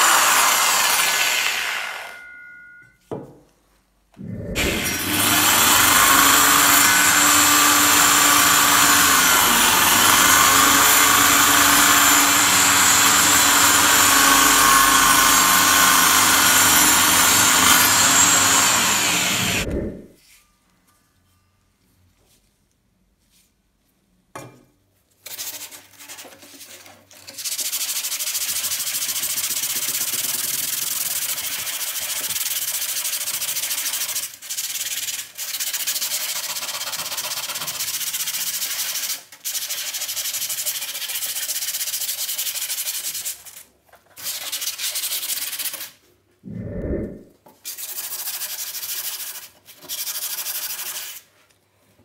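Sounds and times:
sandpaper rubbing on steel blade: 30.7 - 46.0, 47.6 - 51.3.

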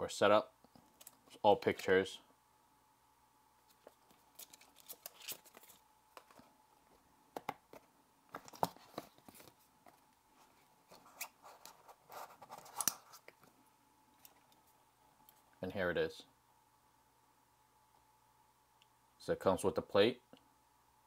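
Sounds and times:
paper and packaging rustling: 3.7 - 6.5.

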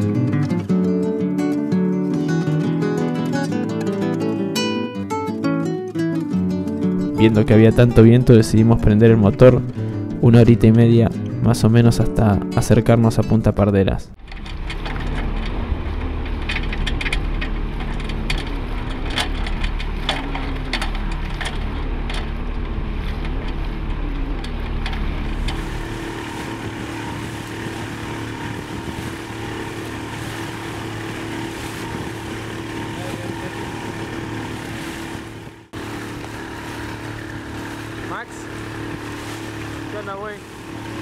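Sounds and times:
boat motor running: 6.2 - 13.0, 14.1 - 41.0
wind: 14.1 - 41.0
water noise: 14.2 - 41.0.

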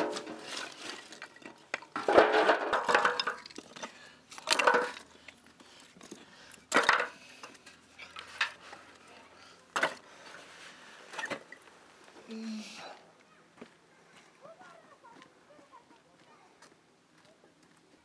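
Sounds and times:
firewood clattering into metal basin: 0.0 - 5.2, 6.7 - 8.8, 9.7 - 10.4, 11.1 - 11.6.

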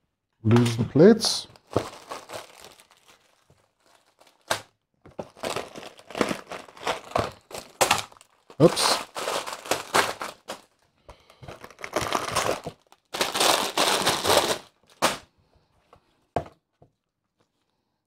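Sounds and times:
plastic bags crinkling: 1.3 - 15.3.

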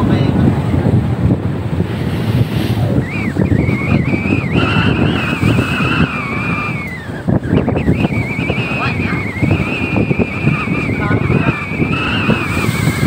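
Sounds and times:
wind buffeting microphone: 0.0 - 13.0
wavering high-pitched whistle: 2.8 - 13.0.

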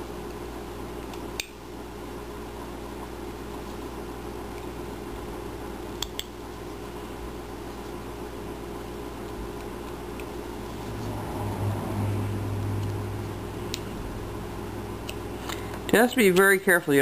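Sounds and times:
background hum: 0.0 - 17.0
knife clicks cutting wood: 6.0 - 6.3.

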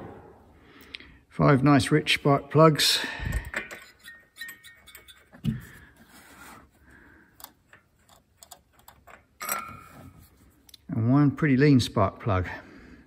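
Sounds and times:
parts clattering: 3.2 - 10.9.

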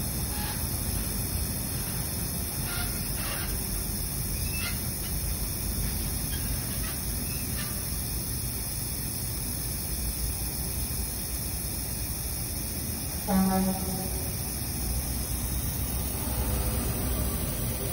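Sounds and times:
aerosol spray hissing: 4.8 - 17.9.

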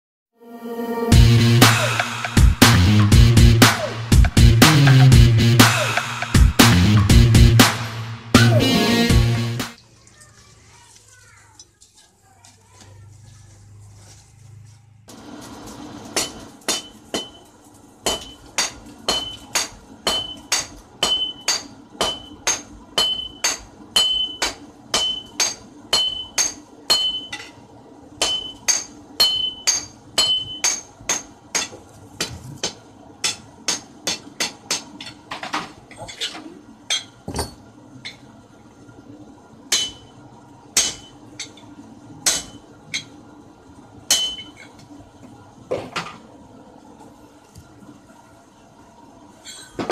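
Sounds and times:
hammer striking metal on anvil: 16.2 - 17.4, 18.0 - 27.5, 28.2 - 35.2, 39.7 - 40.1, 40.8 - 41.5, 42.2 - 43.1, 44.1 - 44.6.

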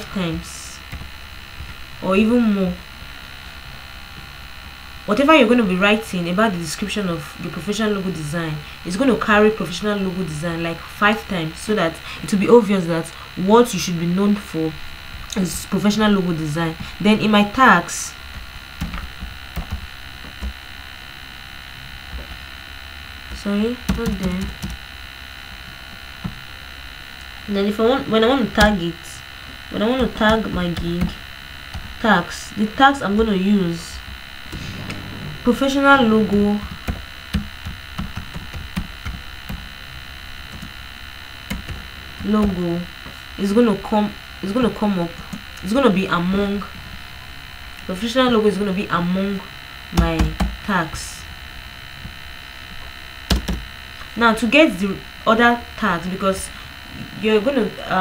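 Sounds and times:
electrical mains hum with whine: 0.0 - 58.0
computer keyboard typing: 18.4 - 20.6, 23.4 - 24.8, 36.8 - 39.7.

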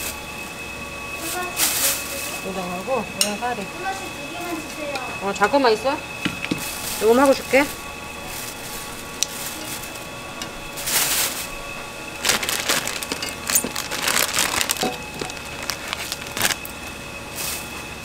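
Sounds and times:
dry noodles crackling: 0.0 - 3.0, 6.6 - 18.0
plastic packets crinkling: 6.6 - 10.0, 10.7 - 16.8.

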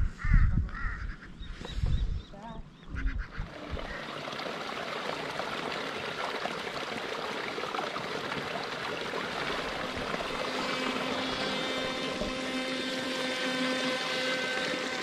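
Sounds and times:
stream water running: 3.2 - 15.0.

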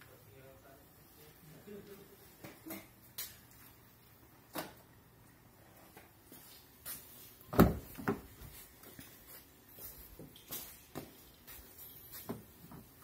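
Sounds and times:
car door clunk: 7.5 - 8.2.

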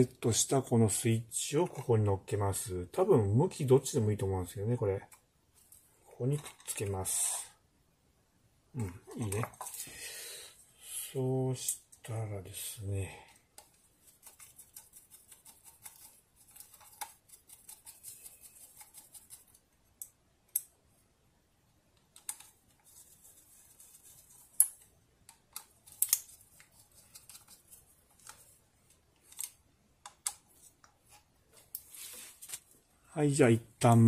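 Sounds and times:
plastic parts rustling and clicking: 5.6 - 7.0, 9.1 - 9.9, 22.0 - 32.7.

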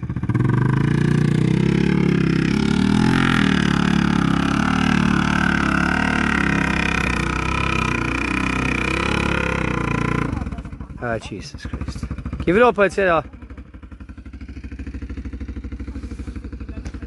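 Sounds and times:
quad bike engine under load: 0.0 - 17.0.

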